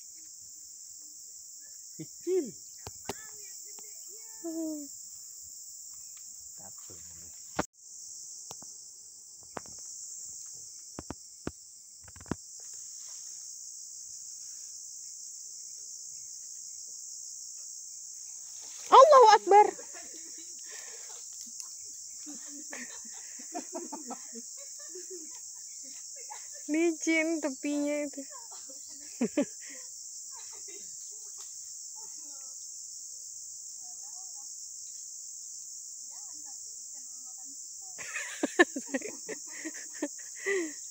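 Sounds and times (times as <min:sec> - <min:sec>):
insects droning: 0:00.0 - 0:40.9.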